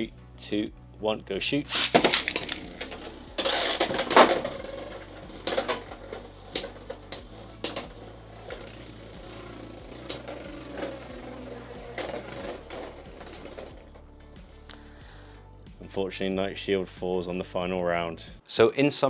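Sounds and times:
spinning tops clacking together: 0:01.7 - 0:14.1
spinning tops whirring: 0:01.7 - 0:14.6.

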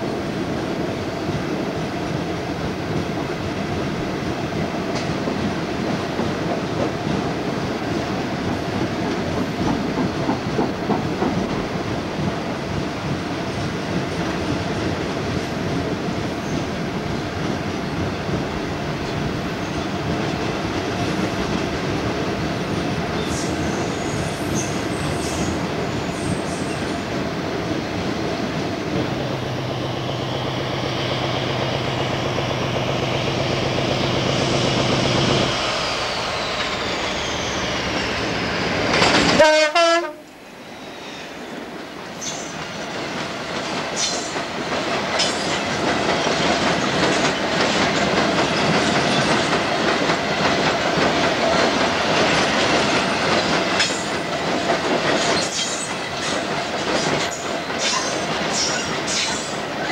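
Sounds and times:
locomotive engine humming: 0:26.9 - 0:40.8.

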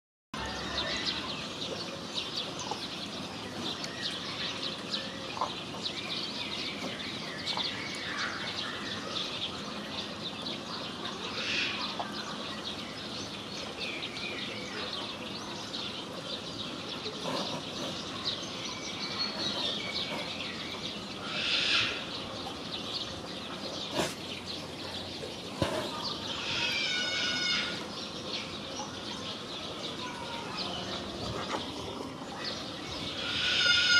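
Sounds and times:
birds chirping and calling: 0:00.4 - 0:33.9
loud pitched repeated bird call: 0:21.2 - 0:22.1, 0:26.2 - 0:27.9, 0:33.0 - 0:33.9.

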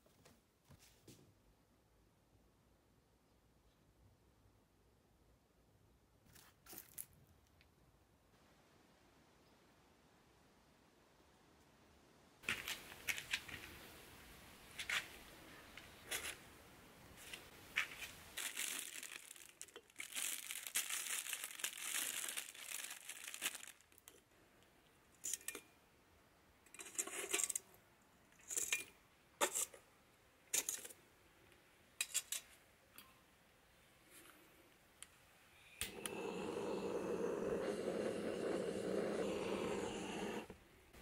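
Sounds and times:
packaging crinkling and tearing: 0:17.8 - 0:24.2
gas torch flame rushing: 0:35.8 - 0:40.5.

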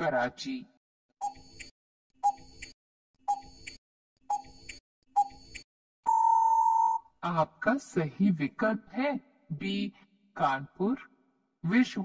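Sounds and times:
long steady beep: 0:06.1 - 0:07.0.

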